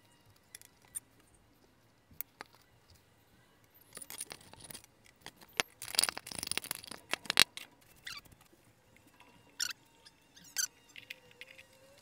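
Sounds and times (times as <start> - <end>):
metal parts clicking and scraping: 0.2 - 2.7, 3.6 - 8.4, 10.4 - 12.0.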